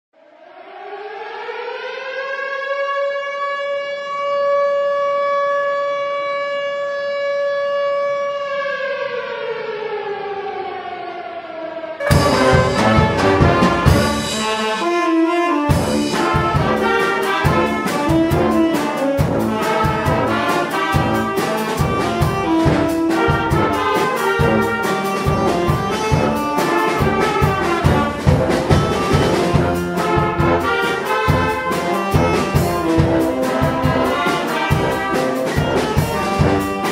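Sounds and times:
air-raid siren wailing: 0.2s - 36.9s
brass band playing: 12.0s - 36.9s.

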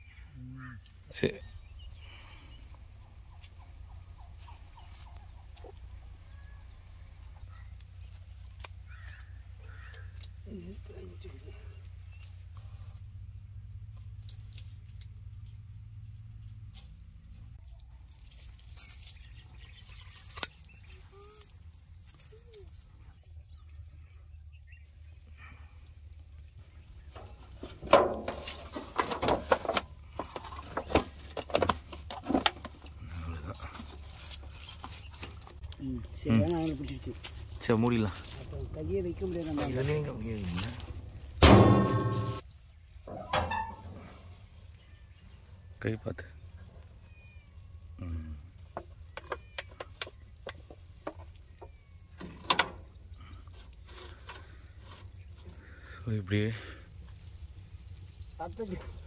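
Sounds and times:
bird chirping: 0.0s - 12.4s, 18.6s - 25.8s, 28.6s - 31.3s, 33.0s - 53.8s
foil tray crinkling and clattering: 27.2s - 33.0s.

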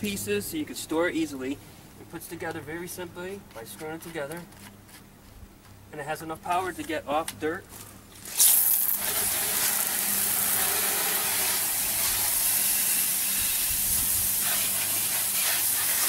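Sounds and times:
water spraying onto pavement: 8.2s - 16.0s.

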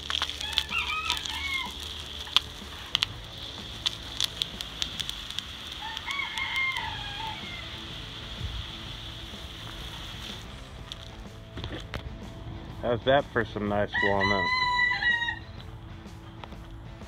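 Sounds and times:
steady high hiss: 0.0s - 13.8s
rooster crowing: 0.4s - 2.2s, 5.7s - 7.9s, 13.9s - 15.6s.

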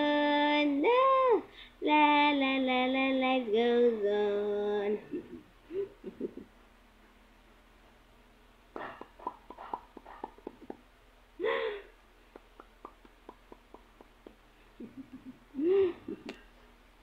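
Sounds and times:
tongue clicks: 12.3s - 14.4s.

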